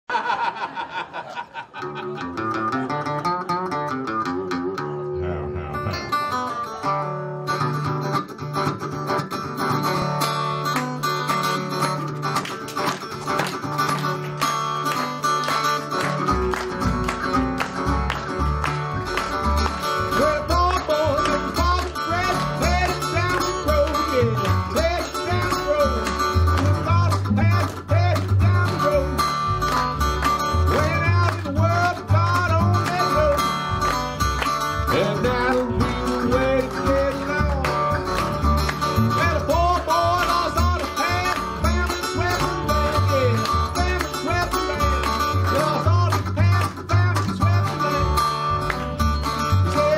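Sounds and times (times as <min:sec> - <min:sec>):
resonator guitar fingerpicking: 0:01.8 - 0:49.9
harmonica bent notes: 0:02.0 - 0:11.8
washtub bass plucking: 0:02.0 - 0:12.4, 0:13.6 - 0:49.9.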